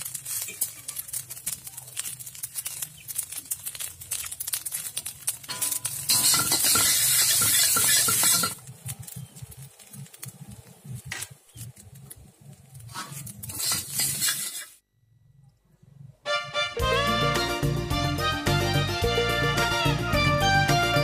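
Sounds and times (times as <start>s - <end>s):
rice sizzling: 0.0s - 14.8s
metal spatula scraping a wok: 5.4s - 8.6s, 12.8s - 14.8s.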